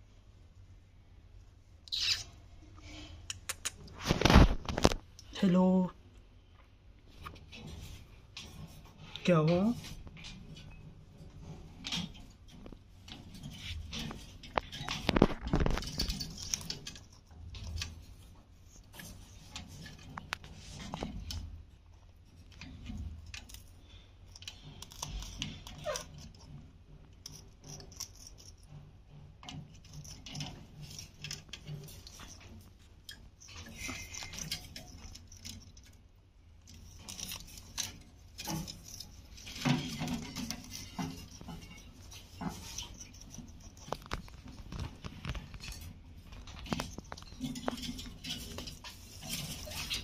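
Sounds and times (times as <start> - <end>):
wire cage floor rattling: 7.1 - 50.0
parakeet crunching food: 13.6 - 18.1, 22.5 - 28.7, 36.6 - 50.0.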